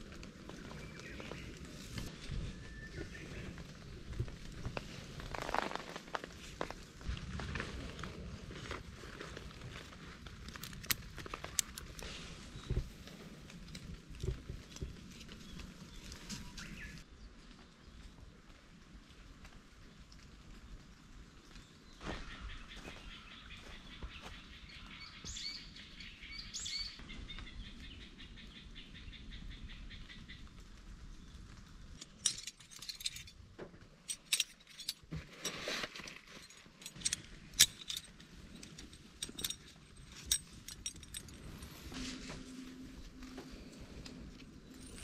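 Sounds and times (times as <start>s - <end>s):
birds chirping: 0.3s - 4.4s, 14.6s - 17.0s, 21.5s - 30.5s
sharp clicks and rustling: 8.8s - 17.0s, 31.8s - 42.5s.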